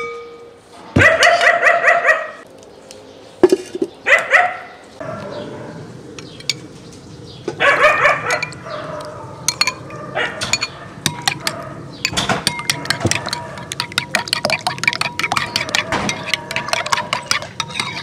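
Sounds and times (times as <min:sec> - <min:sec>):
dog barking: 0:01.0 - 0:02.4, 0:04.1 - 0:05.4, 0:07.6 - 0:11.8
metal spoon scraping ceramic bowl: 0:10.5 - 0:18.0.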